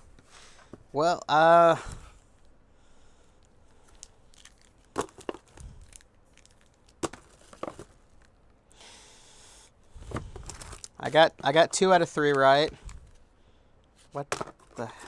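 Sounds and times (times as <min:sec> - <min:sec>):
cardboard packaging clicks and crackles: 0:03.4 - 0:08.5, 0:10.1 - 0:11.6.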